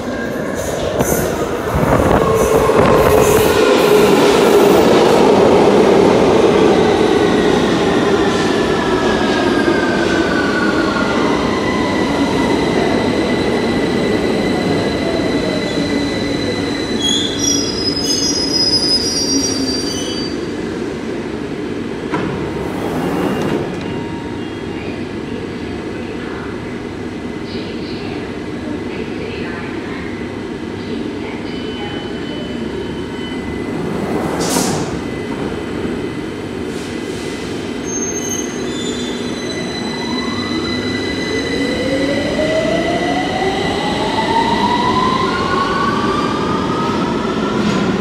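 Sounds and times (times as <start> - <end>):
train doors opening rush: 0.0 - 20.2, 21.5 - 24.4, 32.7 - 44.9.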